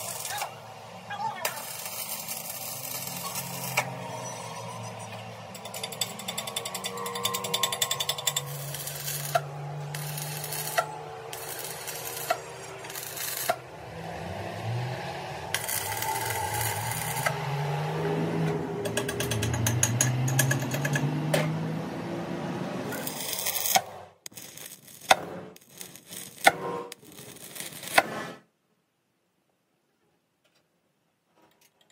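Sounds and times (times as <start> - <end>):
welding arc crackling and sizzling: 0.0 - 13.7, 15.4 - 17.6, 22.9 - 28.4.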